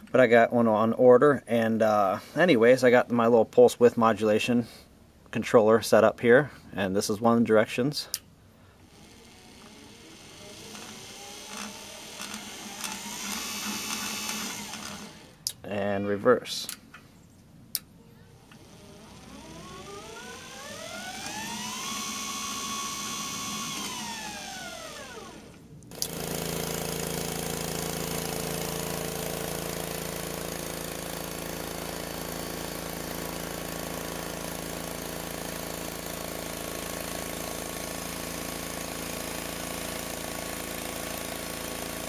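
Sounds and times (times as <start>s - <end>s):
bandsaw mill running: 8.8s - 15.4s, 18.4s - 42.0s
electric motor whine: 8.8s - 15.4s, 18.4s - 42.0s
sharp click: 25.8s - 26.2s.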